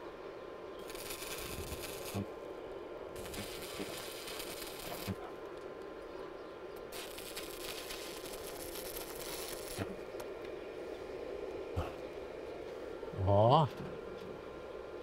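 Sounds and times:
welding arc crackling: 0.8s - 2.3s, 3.1s - 5.3s, 6.9s - 10.0s.

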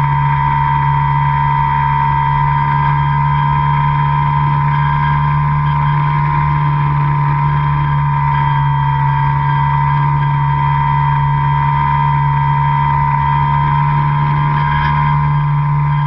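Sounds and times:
model airplane motor drone: 0.0s - 16.0s
propeller whine: 0.0s - 16.0s.

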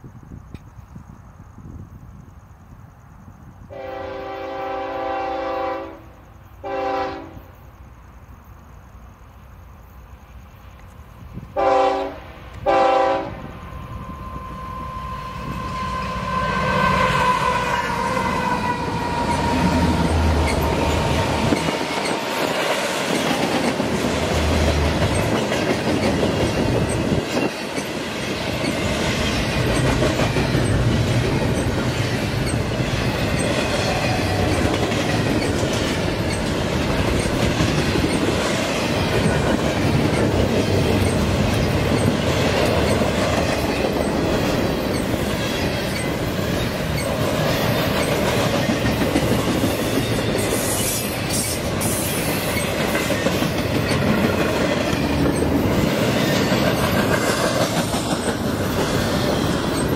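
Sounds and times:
train cars rumbling over rails: 0.0s - 59.9s
locomotive air horn blasts: 3.7s - 7.5s, 11.6s - 13.5s, 14.1s - 20.7s
train whine falling in pitch: 11.6s - 26.0s.

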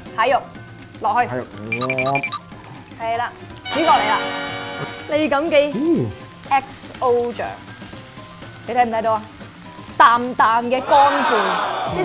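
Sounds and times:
rice sizzling in a frying pan: 0.0s - 12.0s
voices talking: 1.2s - 2.4s.

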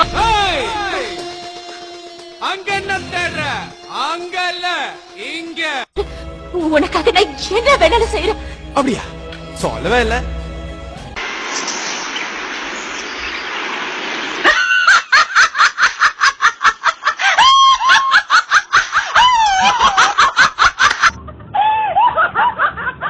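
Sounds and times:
steady hiss: 11.2s - 15.0s
woman laughing hard: 14.4s - 23.0s.

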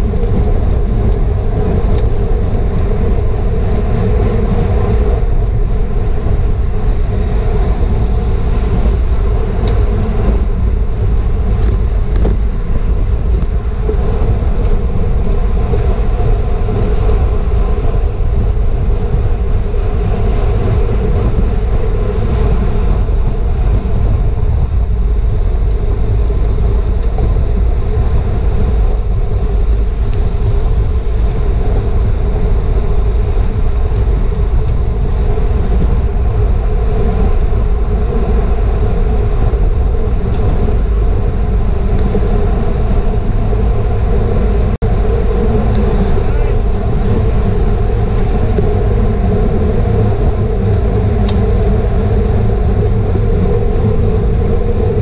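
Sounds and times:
tyres humming on pavement: 0.0s - 55.0s
wind buffeting microphone: 0.0s - 55.0s
light ticks: 52.7s - 52.9s.

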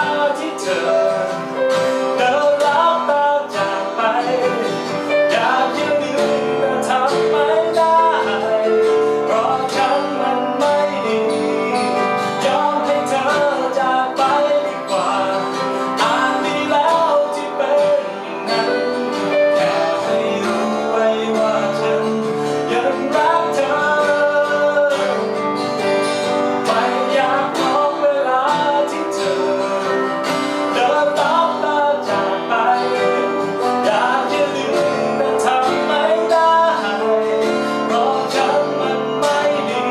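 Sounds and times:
keyboard: 0.0s - 39.9s
man singing: 0.0s - 39.9s
strummed acoustic guitar: 0.0s - 39.9s.

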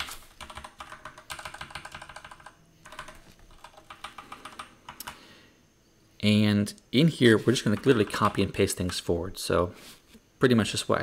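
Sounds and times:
typing on computer keyboard: 0.0s - 5.2s, 7.5s - 9.1s.

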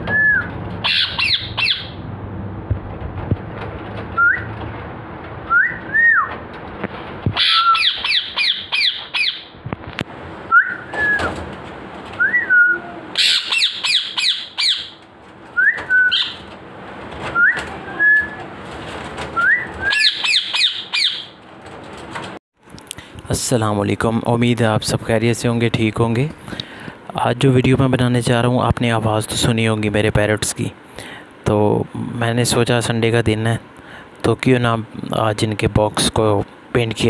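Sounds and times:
parakeet whistled calls: 0.1s - 2.0s, 7.4s - 9.5s, 12.2s - 15.0s, 15.6s - 16.5s, 19.4s - 21.3s
parakeets harsh screeches: 0.8s - 2.0s, 7.4s - 9.5s, 13.2s - 15.0s.

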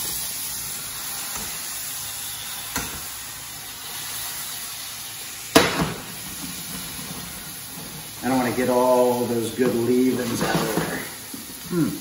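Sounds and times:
sauce sizzling in a frying pan: 0.0s - 12.0s.

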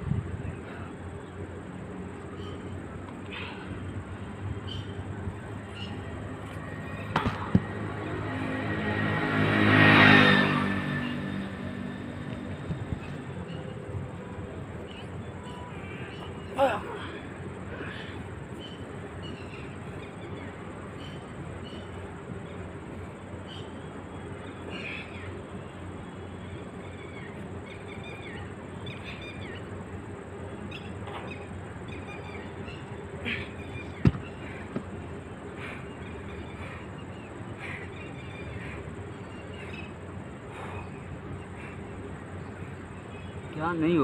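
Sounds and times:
outdoor background noise: 0.0s - 44.0s
birds chirping: 0.4s - 44.0s.

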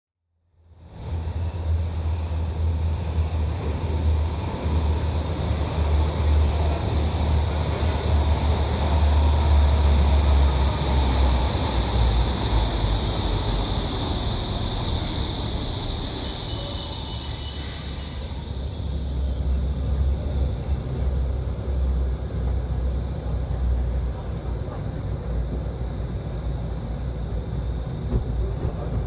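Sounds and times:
train rumbling through tunnel: 0.5s - 29.0s
wheel or brake squeals: 16.2s - 20.1s.

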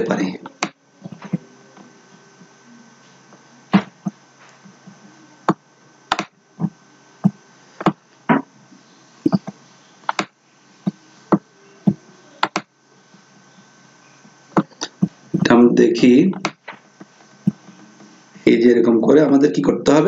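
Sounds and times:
computer mouse clicking: 9.3s - 10.3s.

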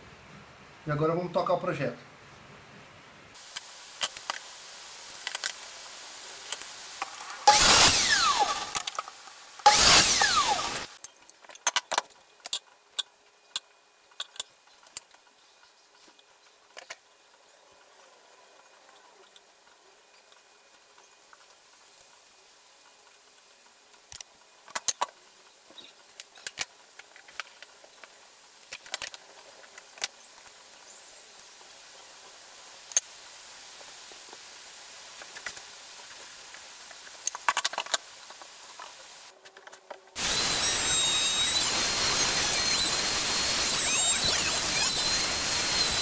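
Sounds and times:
trim router whining: 7.4s - 11.0s, 40.2s - 46.0s.

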